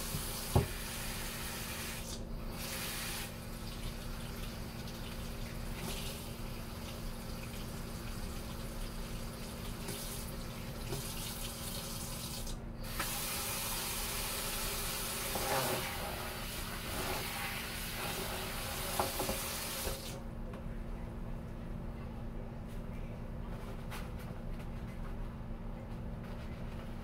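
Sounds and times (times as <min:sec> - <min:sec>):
faucet running: 0:00.0 - 0:20.2.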